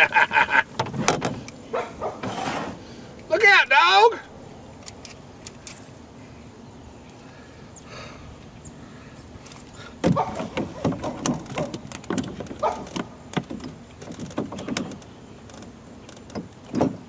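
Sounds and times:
dog barking: 1.7 - 2.2, 10.1 - 10.5, 12.6 - 12.9.

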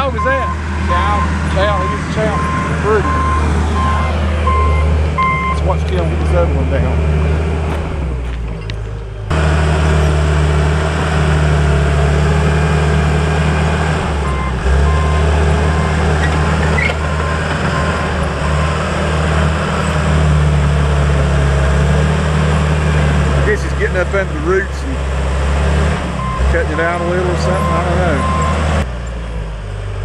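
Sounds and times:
bulldozer diesel engine running: 0.0 - 30.0
faint backup alarm beeping: 1.8 - 5.6.

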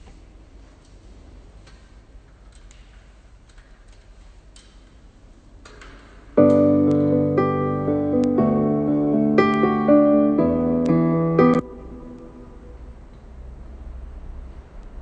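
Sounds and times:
room hum: 0.0 - 15.0
keyboard music with held chords: 6.4 - 12.7.

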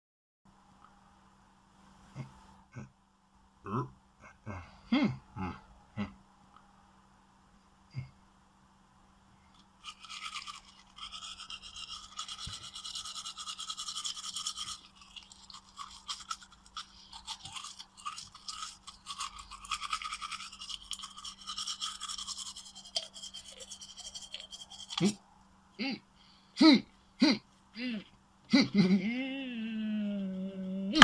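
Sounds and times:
toothbrush scrubbing: 9.8 - 25.2.

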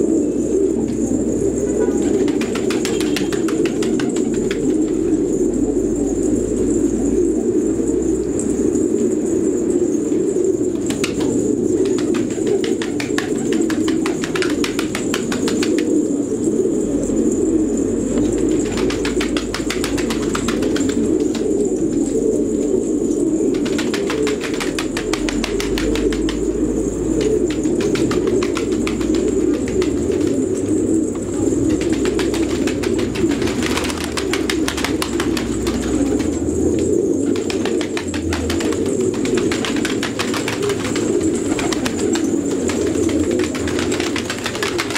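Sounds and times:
pigeons cooing: 0.0 - 44.9
wing flaps: 2.0 - 5.2, 10.8 - 16.1, 18.1 - 22.1, 23.4 - 44.9.

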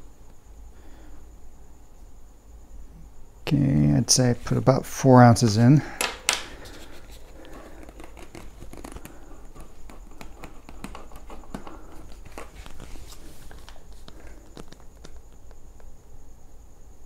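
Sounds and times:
plastic bottle crinkling: 6.4 - 15.6.

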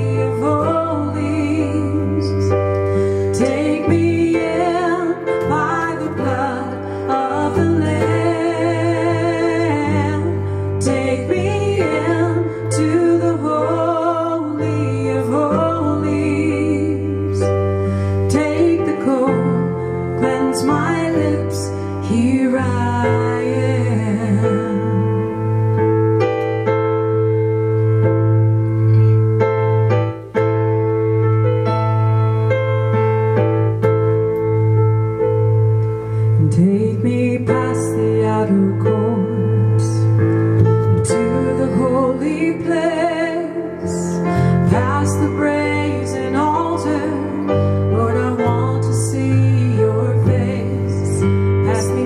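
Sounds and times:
woman singing worship song: 0.0 - 25.5, 36.4 - 52.0
electronic keyboard chords: 0.0 - 52.0
low bass notes: 22.1 - 42.8.

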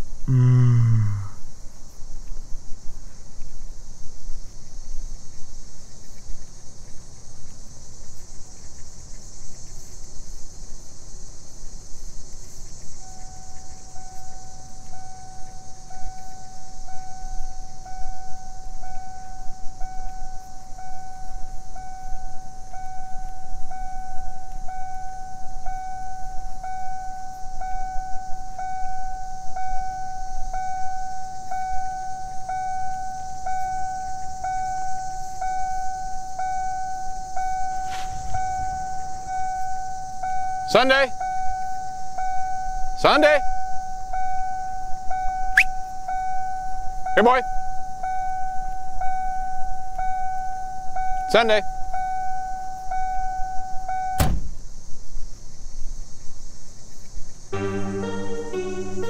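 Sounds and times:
steady high hiss: 0.0 - 59.0
car door warning chime: 13.0 - 54.4
low rumble: 37.6 - 40.6.

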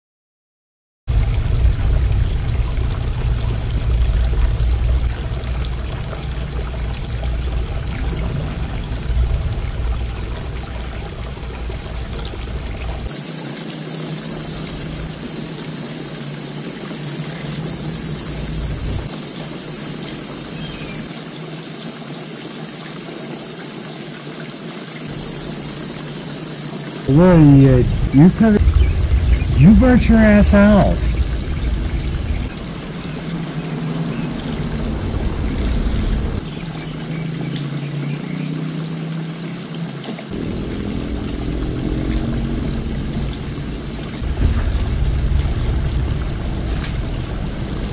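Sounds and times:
heavy low rumble: 1.1 - 13.1, 27.1 - 33.3, 40.3 - 47.9
water trickling in fountain: 1.1 - 47.9
steady high-pitched whine: 13.1 - 33.3.

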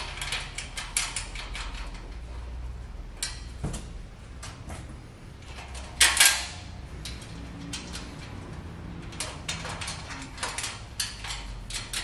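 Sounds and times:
loud metallic rattle: 0.0 - 2.6, 5.4 - 12.0.

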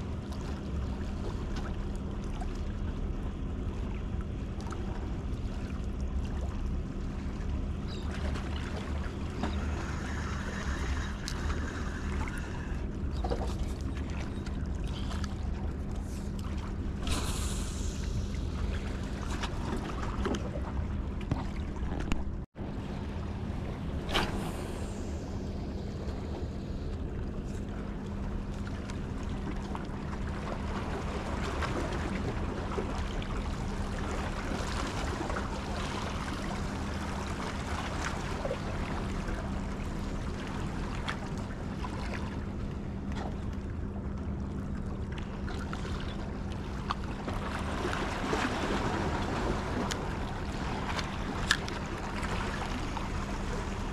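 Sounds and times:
constant low hum: 0.0 - 53.9
low rumble: 0.0 - 53.9
water: 0.0 - 53.9
wind: 0.0 - 53.9.

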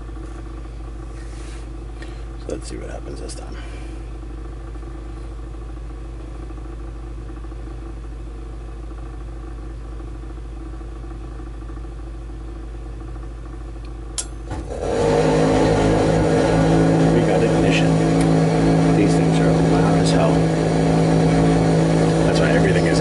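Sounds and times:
furnace blower humming: 0.0 - 23.0
furnace burner low drone: 0.0 - 23.0
sharp ignition click: 14.2 - 14.8.

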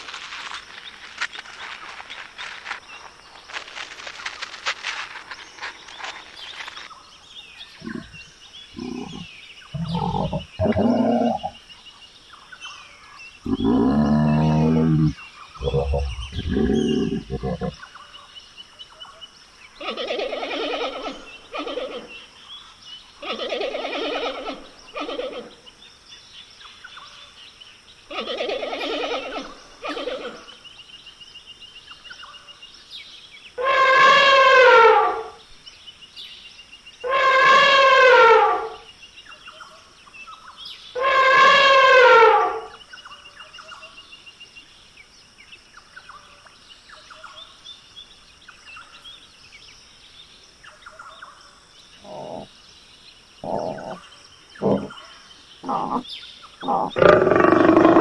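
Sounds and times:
rough buzzy animal calls: 9.8 - 11.6, 52.0 - 52.5, 54.6 - 55.0, 55.6 - 56.0, 56.6 - 58.0.

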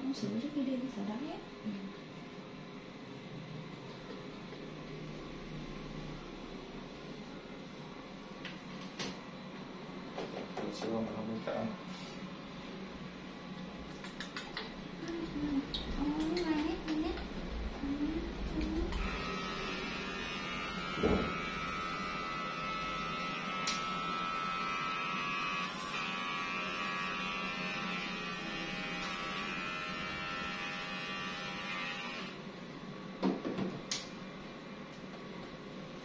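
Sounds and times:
electric hair clipper whining: 18.9 - 32.4.

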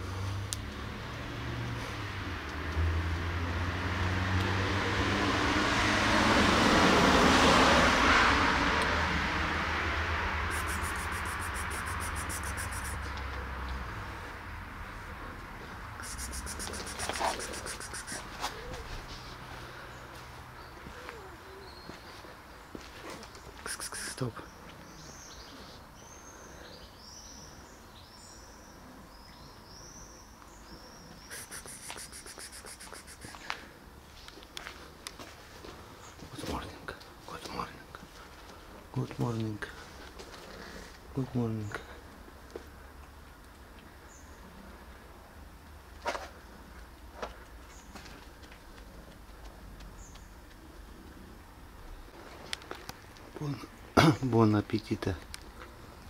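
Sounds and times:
vehicle passing: 0.0 - 26.6
high thin chirps: 10.5 - 13.2, 16.0 - 18.4, 23.6 - 24.2, 31.2 - 33.4.

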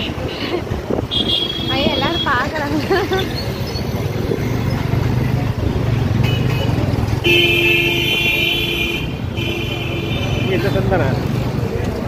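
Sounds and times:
motorbike and car engines: 0.0 - 12.0
vehicle horn honking: 6.2 - 10.8.

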